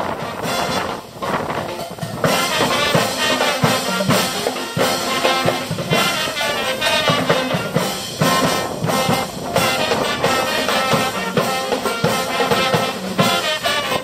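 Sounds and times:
steady drum beat: 0:00.0 - 0:14.0
trumpets and sousaphone playing: 0:00.0 - 0:14.0.

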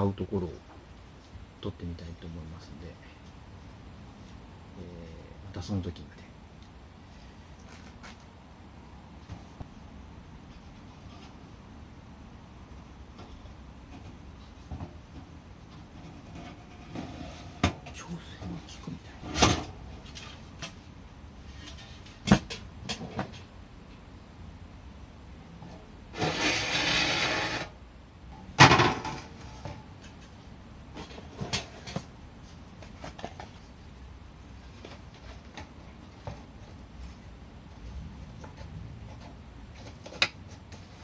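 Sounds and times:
metal scraping slide: 0:26.1 - 0:27.7.

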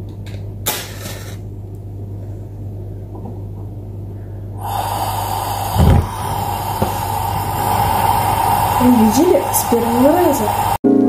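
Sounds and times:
gas burner hissing: 0:04.6 - 0:10.8
gas igniting with low whoomp: 0:04.6 - 0:10.8.

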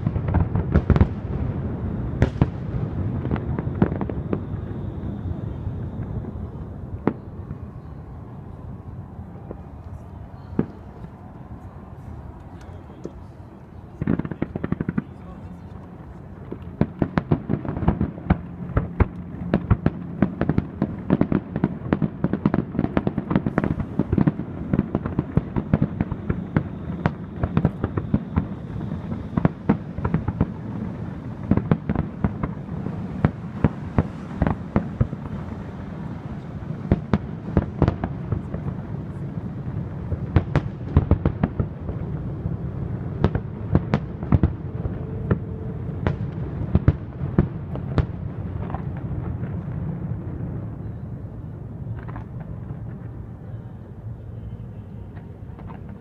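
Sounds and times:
low rumble: 0:00.0 - 0:15.1
fireworks bursting: 0:00.0 - 0:53.6.

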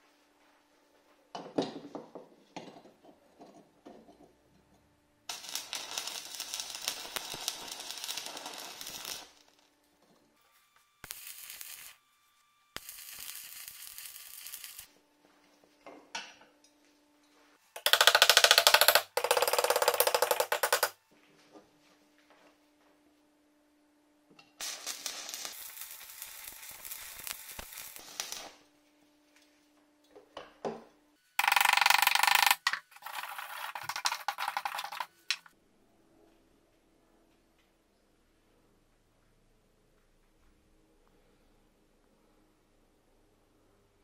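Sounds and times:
welding rod scratching and tapping: 0:05.3 - 0:09.5, 0:11.0 - 0:12.0, 0:12.8 - 0:14.9, 0:24.6 - 0:28.6, 0:31.4 - 0:35.5
welding arc crackling: 0:05.3 - 0:09.6, 0:11.0 - 0:12.0, 0:12.8 - 0:14.9, 0:24.6 - 0:28.6, 0:31.4 - 0:35.5.

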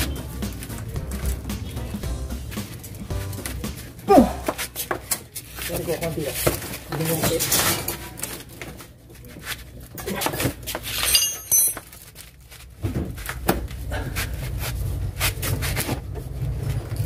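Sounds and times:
metal wrench clinks and knocks: 0:10.8 - 0:12.0.

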